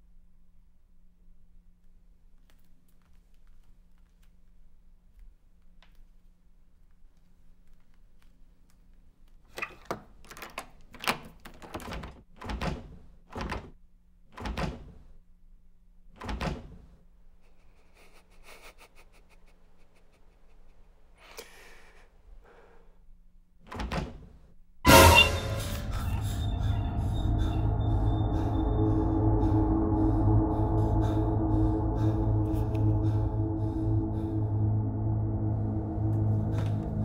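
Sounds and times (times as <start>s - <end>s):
faint low hum: 25.6s - 37.0s.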